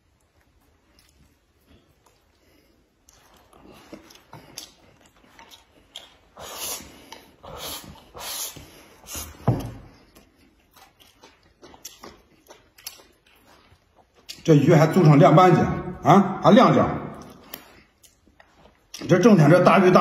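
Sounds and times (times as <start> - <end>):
man slurping from a bowl: 6.3 - 9.4.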